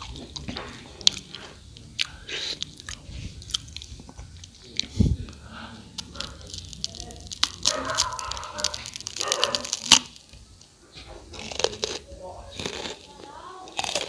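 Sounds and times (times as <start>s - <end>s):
crunchy food being chewed: 0.0s - 14.0s.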